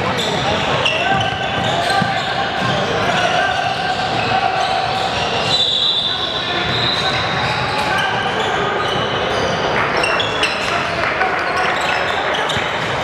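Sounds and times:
sneakers squeaking: 0.0s - 13.0s
voices echoing in gym: 0.0s - 13.0s.

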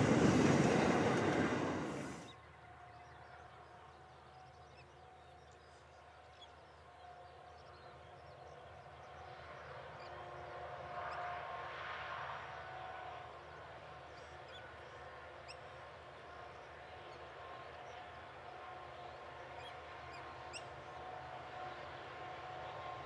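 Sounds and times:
distant locomotive rumble and whine: 0.0s - 23.0s.

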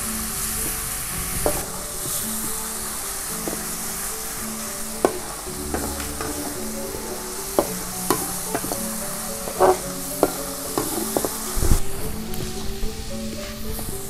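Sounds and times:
paste sizzling in a wok: 0.0s - 14.0s
metal spatula scraping a pan: 5.0s - 11.7s.

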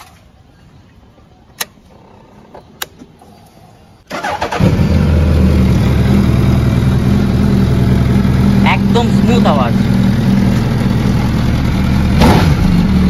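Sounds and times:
clicks: 1.5s - 3.4s
motorcycle engine idling: 4.2s - 13.0s.

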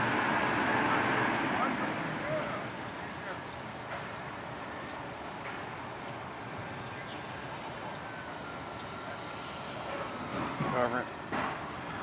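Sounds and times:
outdoor hiss: 0.0s - 12.0s
distant model plane whine: 4.1s - 12.0s.

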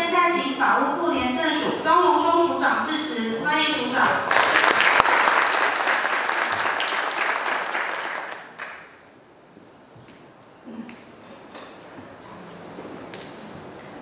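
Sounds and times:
audience applauding: 4.2s - 9.0s.

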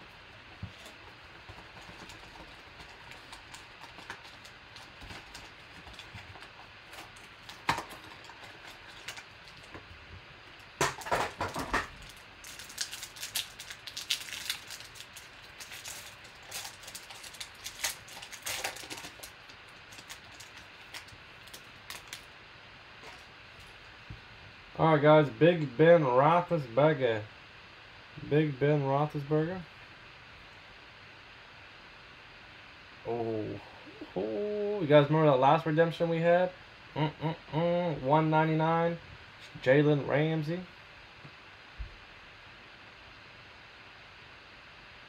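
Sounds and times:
wrapper tearing with loud crinkling: 0.8s - 9.8s, 10.7s - 22.3s.

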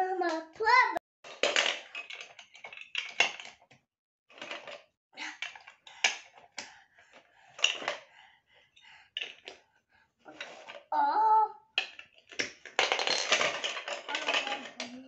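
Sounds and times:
plastic toy bricks clattering: 1.3s - 3.7s, 4.3s - 4.8s, 11.8s - 15.0s.

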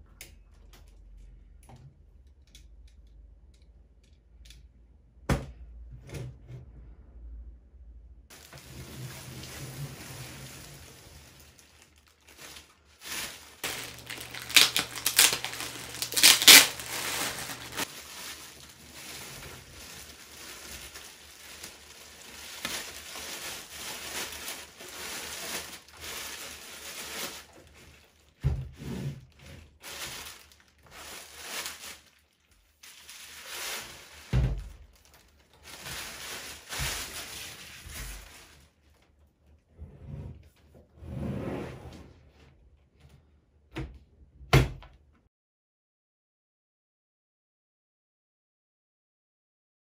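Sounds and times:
plastic bag crinkling: 10.4s - 27.7s, 29.8s - 34.3s, 34.9s - 38.7s.

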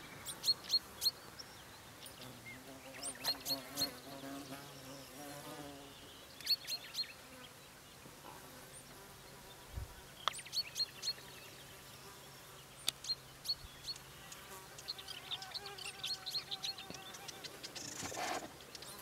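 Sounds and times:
insect buzzing: 2.2s - 6.1s, 10.8s - 19.0s.

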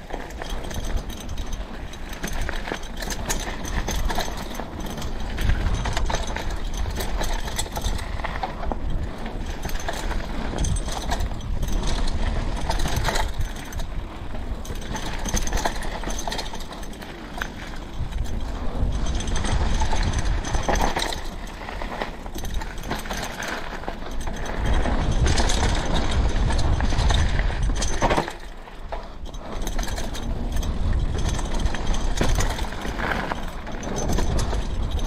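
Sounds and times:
tyres crunching over gravel: 0.0s - 27.6s
bike rattling and clicking: 0.0s - 35.0s
wind on microphone: 4.9s - 16.0s, 17.8s - 21.6s, 24.3s - 28.2s, 29.8s - 35.0s.

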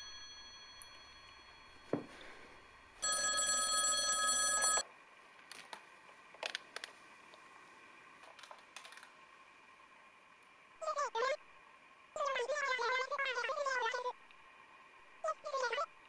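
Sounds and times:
electronic telephone ring: 0.0s - 1.9s, 3.0s - 4.8s.

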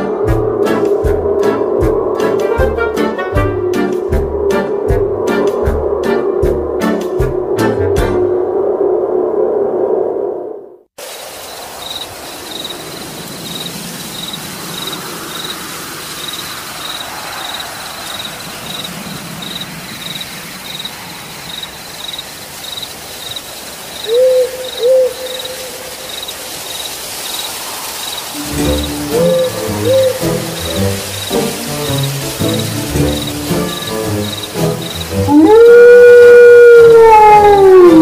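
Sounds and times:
crickets chirping: 8.6s - 35.5s
steady hiss: 11.0s - 35.3s
owl hooting: 24.0s - 26.2s, 28.4s - 38.0s.

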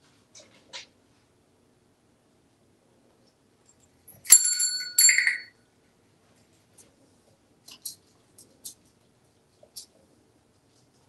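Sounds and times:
small metal bell ringing: 4.1s - 5.6s.

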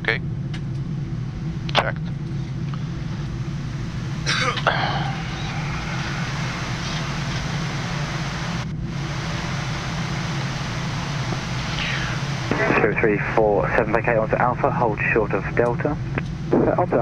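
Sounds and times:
airflow and air-conditioning hiss: 0.0s - 17.0s
low hum: 0.0s - 17.0s
person coughing: 4.2s - 5.3s.

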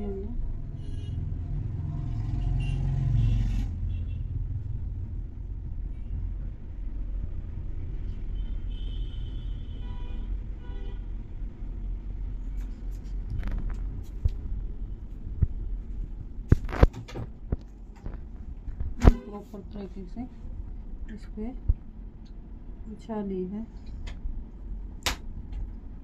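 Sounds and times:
steady low rumble: 4.2s - 8.8s, 10.4s - 26.0s.

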